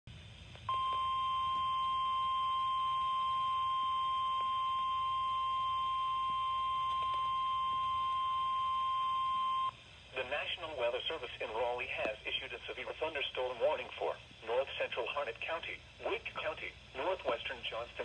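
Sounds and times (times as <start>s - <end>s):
high-pitched alarm beep: 0.7s - 9.7s.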